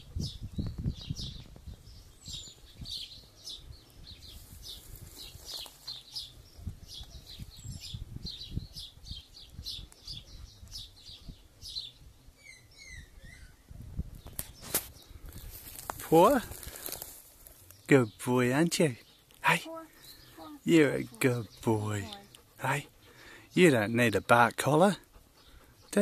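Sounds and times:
small birds chirping: 0.0 - 26.0
thin whistled bird calls: 12.4 - 13.6.

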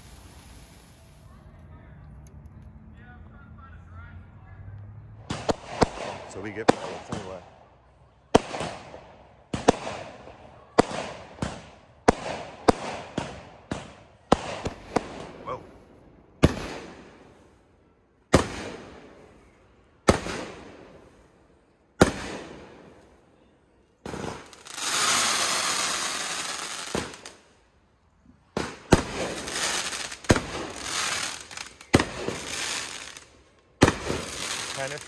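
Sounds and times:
firework hiss: 0.0 - 1.4, 24.1 - 27.3, 28.9 - 35.0
firework crackle: 0.0 - 1.5, 24.1 - 27.5, 28.5 - 35.0
firework bangs with echo: 5.3 - 7.4, 8.4 - 15.6, 16.4 - 17.2, 20.0 - 21.0, 22.0 - 22.9, 28.5 - 33.2, 33.8 - 35.0.

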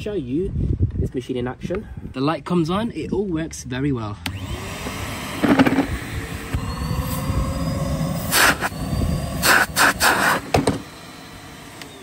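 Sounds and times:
vacuum cleaner motor whining: 4.2 - 12.0.

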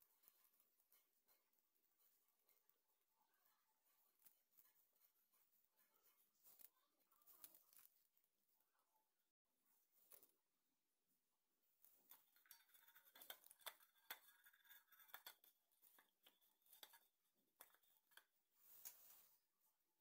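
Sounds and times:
fingers rubbing a metal bowl: 12.0 - 18.4.

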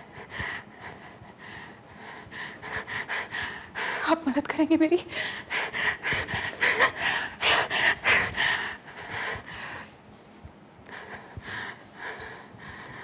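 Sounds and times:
woman sobbing: 5.0 - 8.3.

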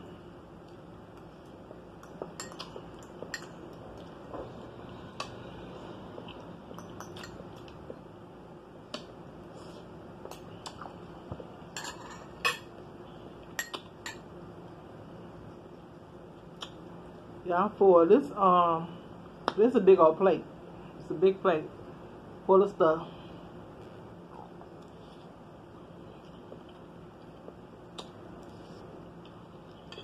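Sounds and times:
metal utensils clinking on dishes: 11.8 - 12.7.

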